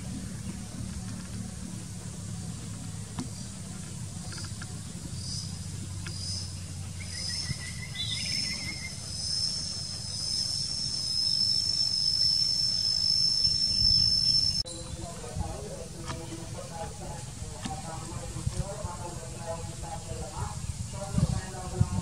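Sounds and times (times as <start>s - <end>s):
insects buzzing: 0.0s - 22.0s
low background rumble: 0.0s - 22.0s
trilling chirp: 5.2s - 15.1s.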